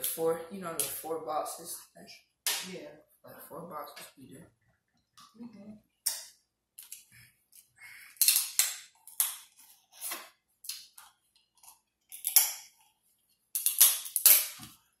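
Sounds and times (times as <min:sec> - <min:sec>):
crab shell crackling and snapping: 0:13.6 - 0:14.6.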